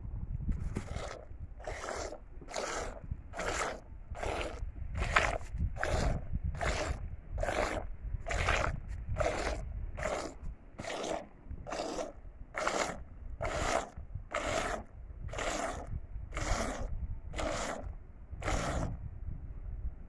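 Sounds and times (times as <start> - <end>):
milk squirting into bucket: 0.6 - 19.0.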